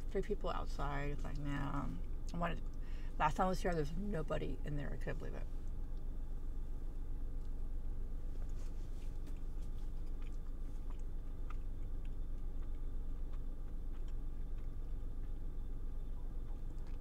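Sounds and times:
steady low rumble: 0.0s - 17.0s
person chewing: 8.4s - 17.0s.

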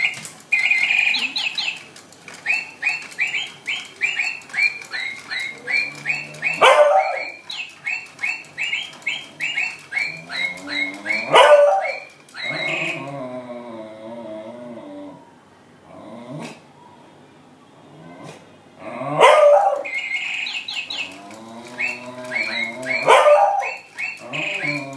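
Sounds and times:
toy parrot electronic chirps: 0.0s - 13.1s, 19.8s - 24.9s
dog whining: 2.5s - 15.2s, 20.9s - 24.9s
dog barking: 6.4s - 7.4s, 11.1s - 12.1s, 19.2s - 19.9s, 22.4s - 23.8s.

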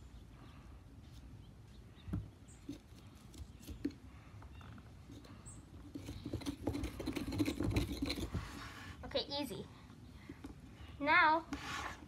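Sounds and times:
carving tool scratching pumpkin: 5.2s - 8.8s.

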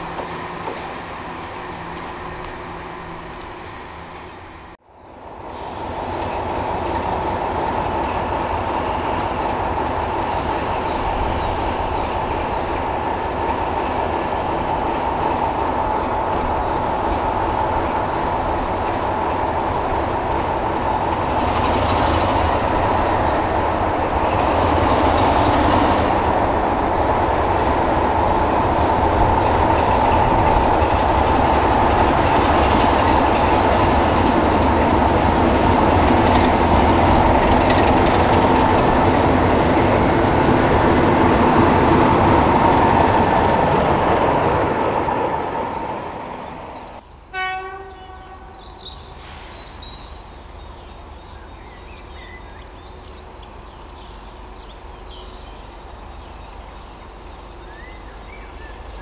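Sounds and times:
wheels rumbling on rails: 0.0s - 47.2s
diesel locomotive engine: 0.0s - 59.0s.

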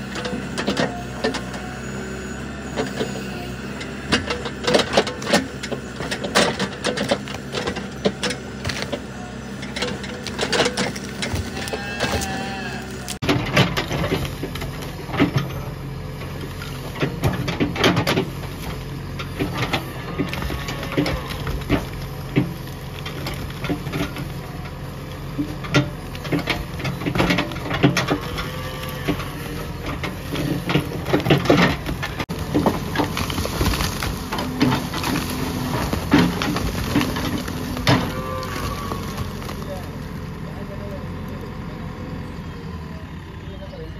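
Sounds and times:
diesel engine running under load: 0.0s - 43.9s
falling bricks and rubble: 25.2s - 40.0s.

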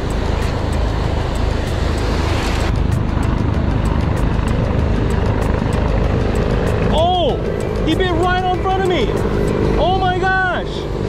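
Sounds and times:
faint regular ticking: 2.9s - 9.8s.

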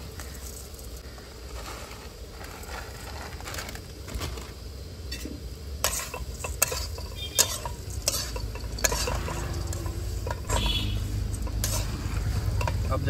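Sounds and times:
spices sizzling: 0.0s - 13.0s
metal spatula scraping a pan: 5.1s - 13.0s.

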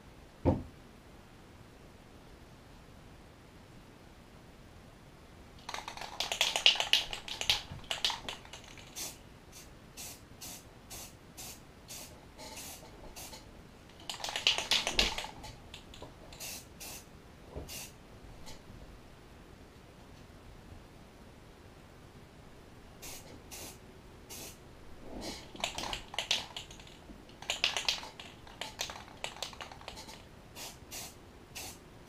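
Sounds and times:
clattering spray can: 5.6s - 9.2s, 10.0s - 13.4s, 14.0s - 17.0s, 23.0s - 24.6s, 25.2s - 31.8s
aerosol spray can bursts: 5.7s - 13.4s, 16.4s - 17.0s, 17.7s - 17.9s, 23.0s - 24.6s, 27.5s - 31.8s.

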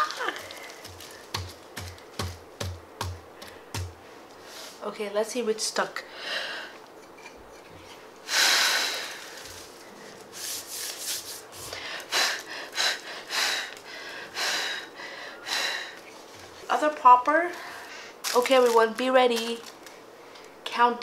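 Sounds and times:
breath blowing in puffs: 8.3s - 9.5s.

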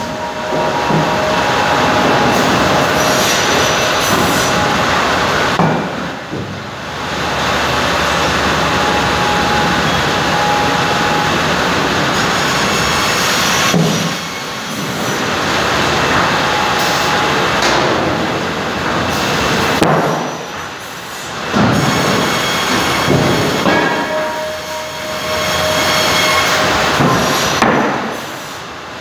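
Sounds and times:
saw line machinery running: 0.0s - 28.7s
clunks of wood and machinery: 21.5s - 24.5s.

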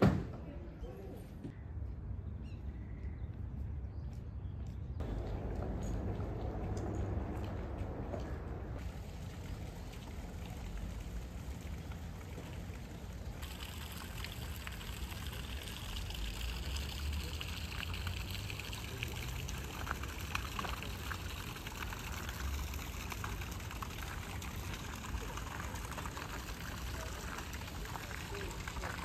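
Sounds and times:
low rumble: 5.0s - 11.7s
water trickling into a pond: 5.0s - 29.0s.

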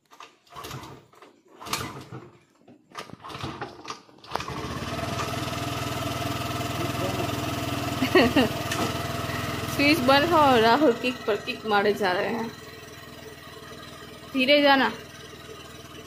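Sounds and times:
scooter kick-start kicks: 0.1s - 5.5s, 8.6s - 9.3s
scooter engine idling: 4.5s - 16.0s.

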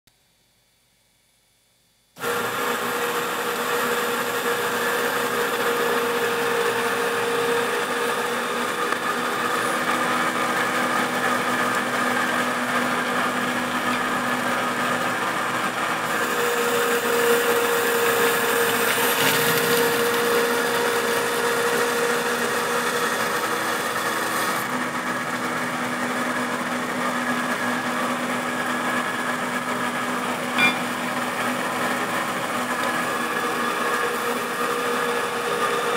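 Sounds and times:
belt grinder whirring: 2.2s - 28.3s.

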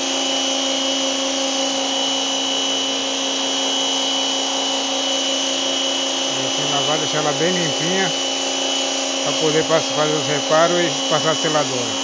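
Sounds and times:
pressure washer motor humming: 0.0s - 12.0s
water jet hissing: 4.4s - 12.0s.

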